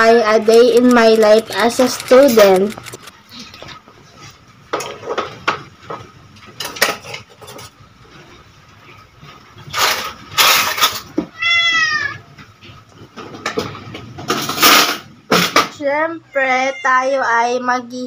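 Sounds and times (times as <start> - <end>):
dishes and utensils clattering: 4.6 - 11.3, 12.6 - 15.7
cat meowing: 11.3 - 12.3, 16.2 - 17.3.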